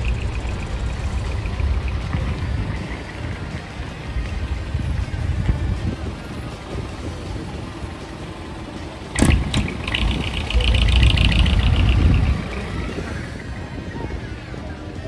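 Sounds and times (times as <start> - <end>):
truck engine rumbling past: 0.0 - 15.0
sharp crack: 9.1 - 10.8.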